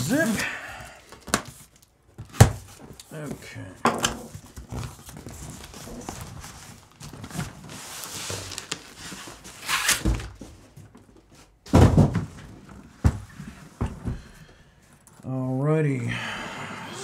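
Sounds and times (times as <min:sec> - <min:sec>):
cardboard scraping and rustling: 0:04.2 - 0:12.2.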